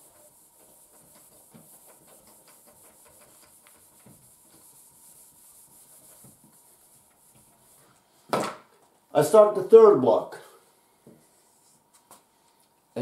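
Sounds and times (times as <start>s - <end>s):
marker writing on whiteboard: 0.0s - 7.8s
eraser rubbing whiteboard: 0.0s - 7.9s.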